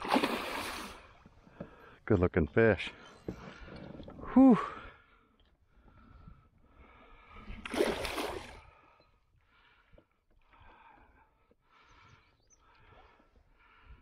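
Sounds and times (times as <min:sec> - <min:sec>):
soft water sounds: 0:00.0 - 0:14.0.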